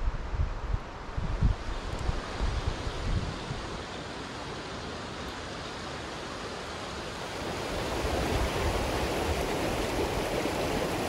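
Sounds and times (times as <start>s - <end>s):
creek rushing over rocks: 5.6s - 11.0s.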